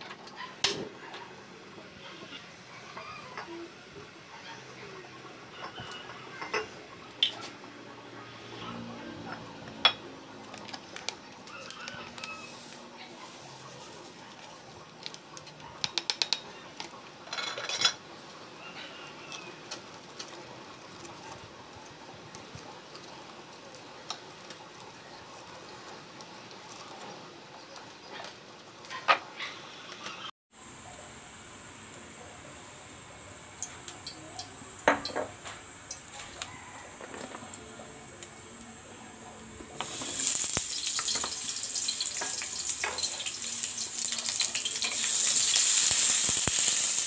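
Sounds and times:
cookware and utensils clinking: 0:05.5 - 0:07.7, 0:15.4 - 0:18.1, 0:39.8 - 0:45.6.

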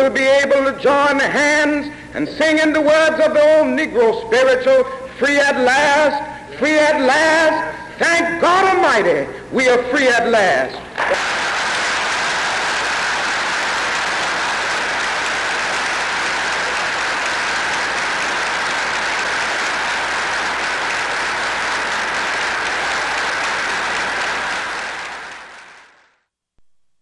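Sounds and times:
crowd applauding: 0:11.0 - 0:26.2.

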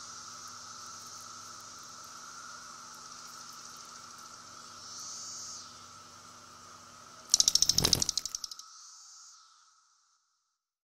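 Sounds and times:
cicada buzzing clicks: 0:00.2 - 0:05.8, 0:07.3 - 0:09.0.

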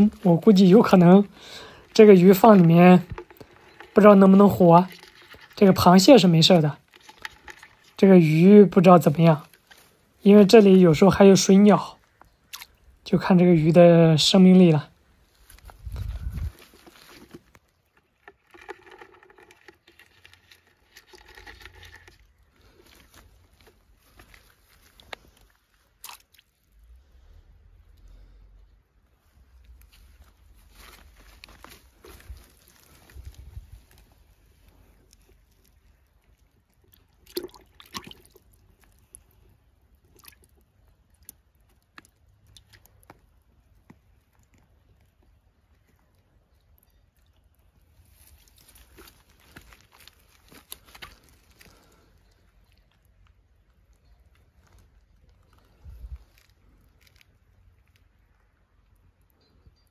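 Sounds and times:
plastic bucket handling: 0:00.0 - 0:10.6, 0:15.3 - 0:25.5, 0:29.8 - 0:35.5
brush rustling and crunching: 0:00.0 - 0:13.0, 0:15.0 - 0:26.6, 0:29.2 - 0:37.1, 0:47.8 - 0:58.3
water drips: 0:00.0 - 0:13.4, 0:15.3 - 0:26.9, 0:34.6 - 0:54.8
hand splashing in bucket of water: 0:37.1 - 0:38.5.

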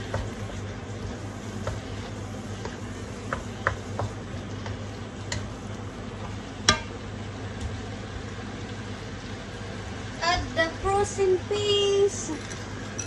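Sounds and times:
spatula stirring meat: 0:00.0 - 0:07.0
meat sizzling in a wok: 0:00.0 - 0:12.9
steady low hum: 0:00.0 - 0:13.0
spatula knocking against pan: 0:02.6 - 0:05.5.

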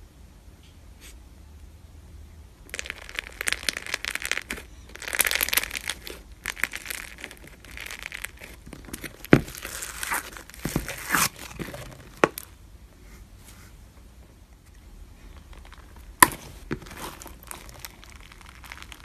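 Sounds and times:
slime crackling and crunching: 0:02.6 - 0:12.6, 0:15.1 - 0:19.0
sharp slime pops: 0:16.1 - 0:19.0.

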